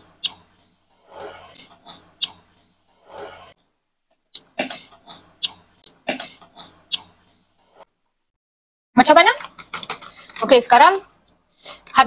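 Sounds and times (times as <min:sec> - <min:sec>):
person coughing: 0:04.4 - 0:06.7.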